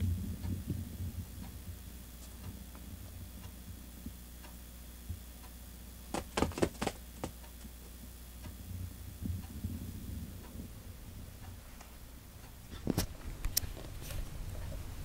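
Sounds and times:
faint ticks: 0.0s - 14.9s
cat's paw tapping foam mat: 6.1s - 7.4s.

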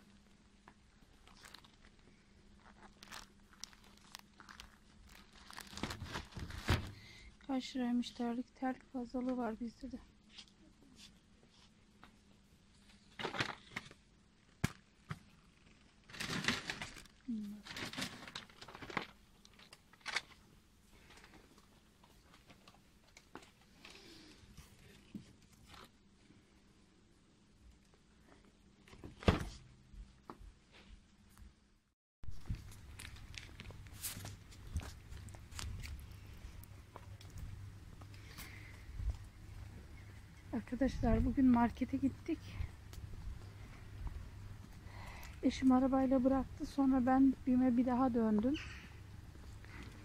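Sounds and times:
low steady hum: 0.0s - 50.0s
packaging clicks and rustles: 0.7s - 7.0s, 15.7s - 20.4s, 32.4s - 37.4s
plastic bag crinkling: 1.0s - 7.0s, 15.6s - 20.4s, 32.3s - 37.4s.

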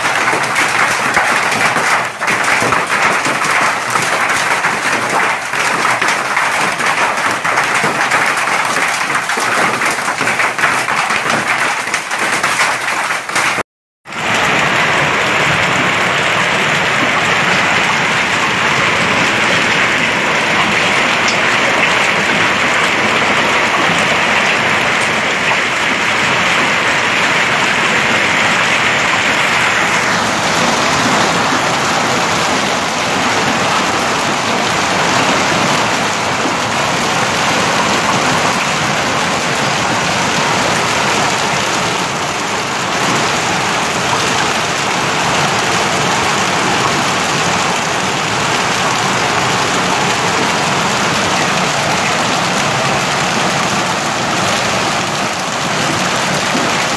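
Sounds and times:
hail pelting the ground: 0.0s - 56.9s
hiss of falling hail and rain: 0.0s - 56.9s.

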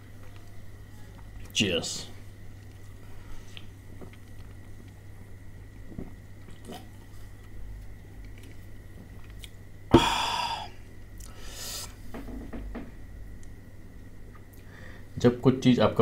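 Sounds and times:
breathy exhale: 9.9s - 12.0s, 14.6s - 15.1s.

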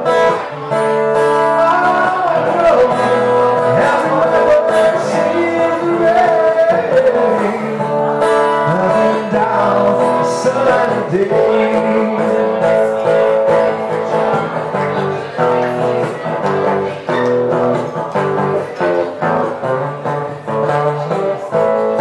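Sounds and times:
man singing: 0.0s - 17.2s
acoustic guitar: 0.0s - 22.0s.

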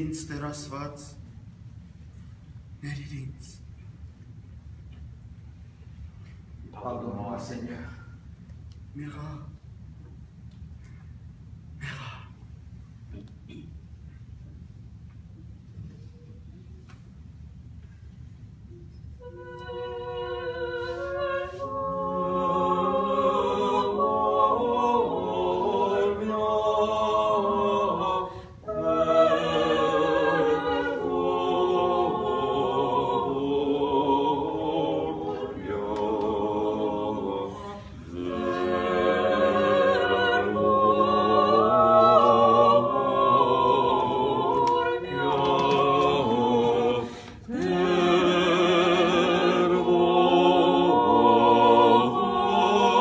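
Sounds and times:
vocal quartet singing in harmony: 19.2s - 53.0s.

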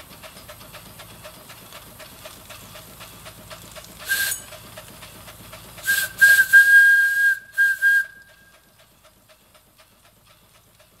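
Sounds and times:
steam whistle blasts: 4.1s - 4.5s, 5.8s - 8.5s.

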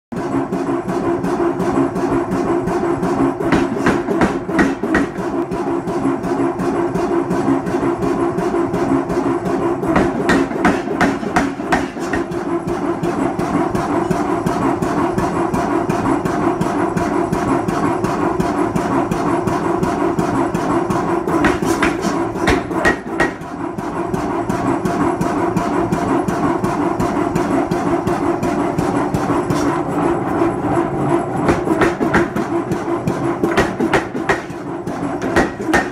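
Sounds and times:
power hammer striking steel: 3.4s - 6.0s, 9.8s - 14.3s, 21.2s - 29.8s, 31.4s - 35.9s.

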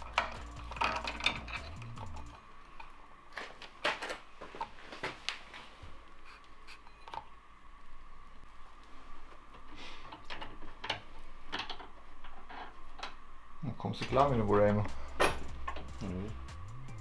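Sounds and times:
metal chain clinking and rattling: 0.0s - 2.4s.

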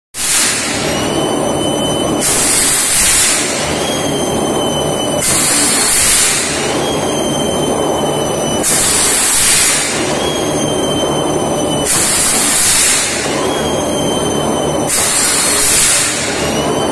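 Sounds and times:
air hiss bursts: 0.2s - 0.9s, 2.2s - 3.8s, 5.2s - 6.7s, 8.6s - 10.0s, 11.8s - 13.3s, 14.9s - 16.4s
steady high whine: 0.2s - 16.9s
low mechanical rumble: 0.5s - 16.9s.

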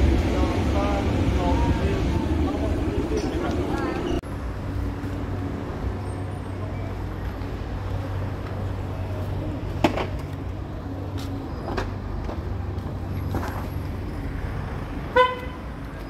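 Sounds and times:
traffic engine drone: 0.0s - 16.0s
vehicle horn toot: 15.1s - 15.7s.

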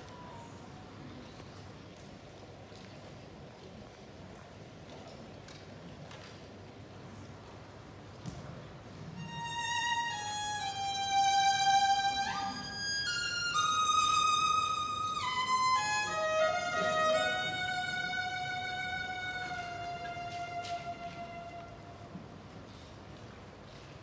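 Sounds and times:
solo violin slow melody: 9.2s - 22.4s.

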